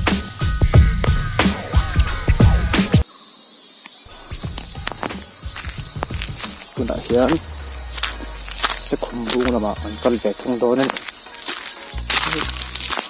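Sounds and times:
insects droning: 0:00.0 - 0:13.0
person speaking: 0:04.1 - 0:11.0, 0:12.0 - 0:12.8.

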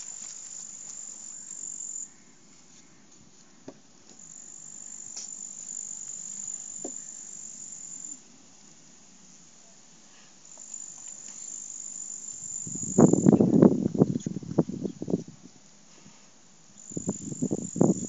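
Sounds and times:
insect buzzing trill: 0:00.0 - 0:02.1, 0:04.2 - 0:08.2, 0:10.5 - 0:13.7, 0:16.8 - 0:18.0.

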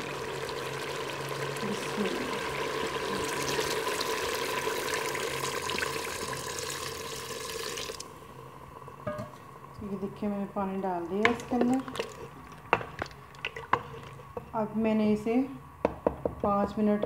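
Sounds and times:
water pouring into steel pot: 0:00.0 - 0:08.2, 0:11.3 - 0:14.3.

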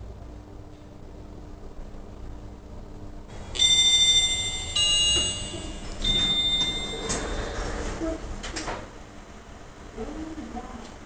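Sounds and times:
elevator chime tones: 0:03.3 - 0:08.2
elevator doors sliding open: 0:03.3 - 0:09.0.

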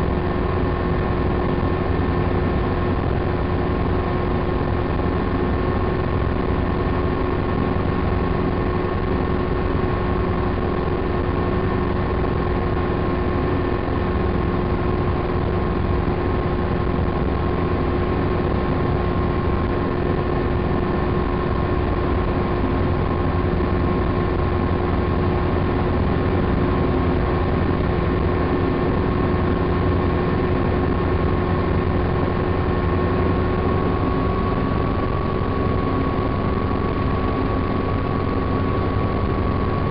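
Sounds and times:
helicopter rotor drone: 0:00.0 - 0:39.9
helicopter engine whine: 0:20.0 - 0:39.9.

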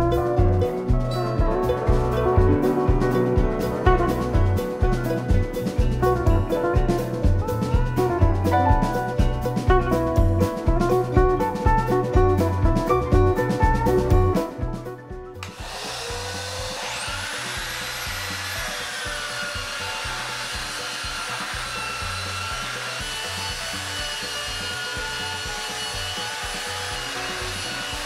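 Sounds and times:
belt sander sanding wood: 0:15.4 - 0:28.0.

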